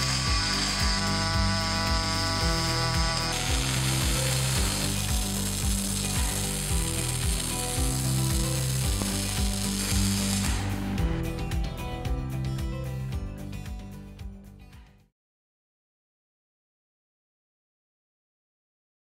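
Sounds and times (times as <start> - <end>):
welding arc crackling and sizzling: 0.0 - 11.2
background music with bass beat: 0.0 - 15.0.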